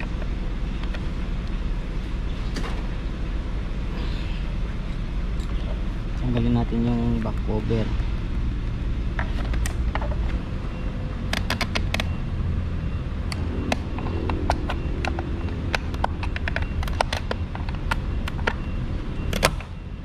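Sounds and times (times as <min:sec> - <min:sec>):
low traffic rumble: 0:00.0 - 0:20.0.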